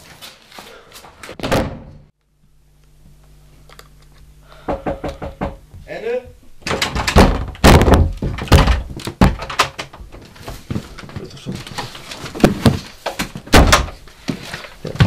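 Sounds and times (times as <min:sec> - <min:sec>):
door thumps and bumps: 0:04.6 - 0:05.9, 0:06.6 - 0:10.2, 0:12.3 - 0:14.0
knocking on door: 0:04.6 - 0:05.9.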